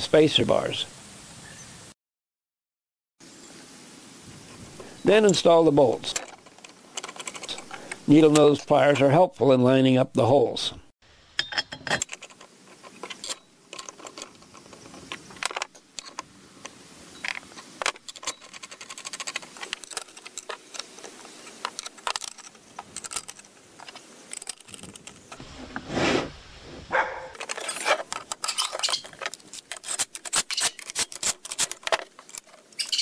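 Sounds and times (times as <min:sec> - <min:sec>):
metal parts clinking: 0:05.2 - 0:09.0, 0:11.4 - 0:16.3, 0:17.1 - 0:25.4, 0:27.4 - 0:33.0.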